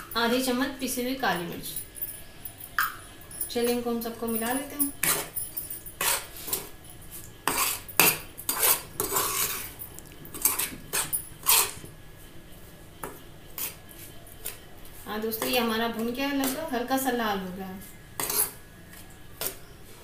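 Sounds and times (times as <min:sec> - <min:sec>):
spoon scraping a frying pan: 0:05.0 - 0:05.4, 0:06.0 - 0:06.8, 0:07.4 - 0:11.9, 0:18.2 - 0:18.6.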